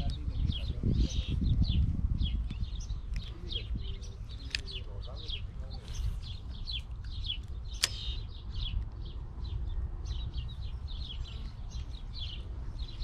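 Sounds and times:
small birds chirping: 0:00.0 - 0:13.0
sharp click: 0:07.0 - 0:08.2.

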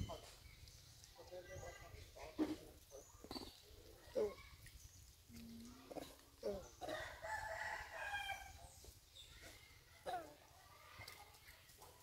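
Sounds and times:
rooster crowing: 0:06.8 - 0:08.5.

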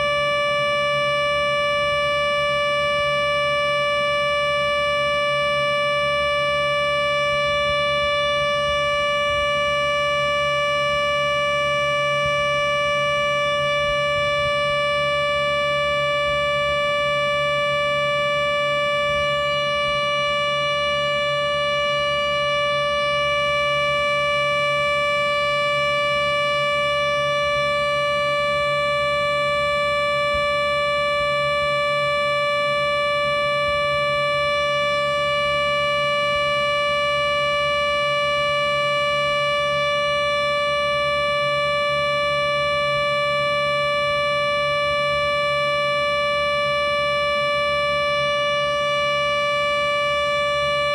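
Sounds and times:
low hum: 0:00.0 - 0:31.6
synthesized siren tone: 0:00.0 - 0:50.9.

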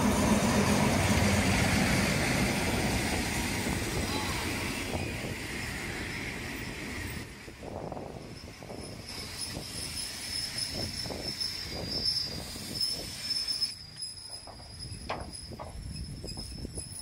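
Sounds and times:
train wheels squealing: 0:03.2 - 0:17.0
running gear knocking and clanking: 0:14.4 - 0:17.0.

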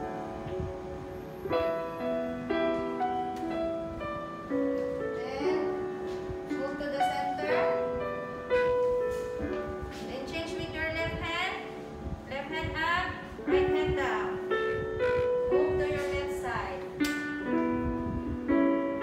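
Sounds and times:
slow instrumental melody: 0:00.0 - 0:19.0.

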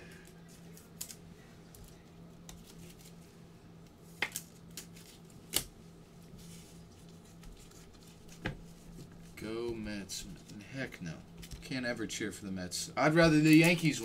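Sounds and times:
low steady hum: 0:00.0 - 0:14.0
trading cards clicking and snapping: 0:04.2 - 0:05.7.

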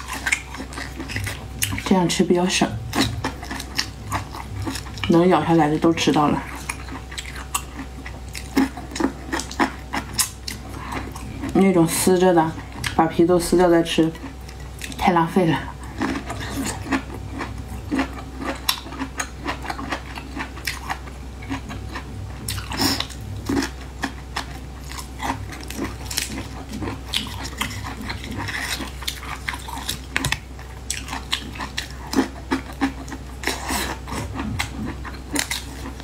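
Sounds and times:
low steady hum: 0:00.0 - 0:36.0
crisp bites and wet chewing: 0:15.8 - 0:36.0.

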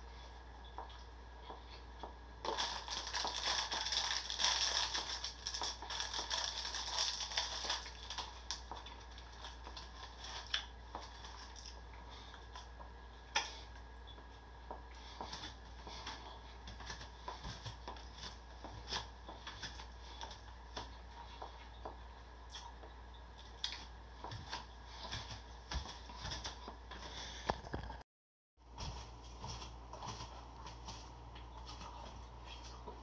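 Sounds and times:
steady low hum: 0:00.0 - 0:28.0, 0:28.6 - 0:33.0.

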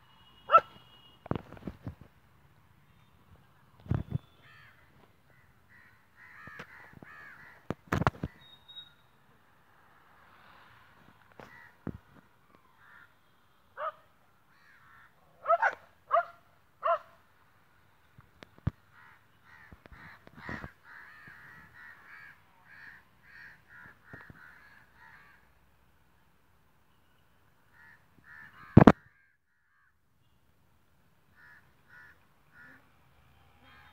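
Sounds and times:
crows cawing: 0:04.4 - 0:07.8, 0:11.4 - 0:11.9, 0:12.6 - 0:13.2, 0:13.8 - 0:15.6, 0:18.9 - 0:25.6, 0:27.7 - 0:30.0, 0:31.3 - 0:32.8.

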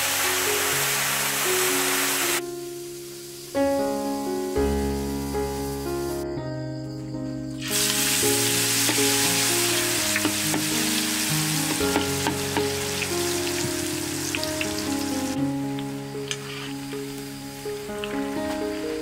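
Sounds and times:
oil sizzling in a wok: 0:00.0 - 0:04.2, 0:07.6 - 0:19.0
soft background music: 0:00.0 - 0:19.0
oil popping: 0:07.8 - 0:15.0.

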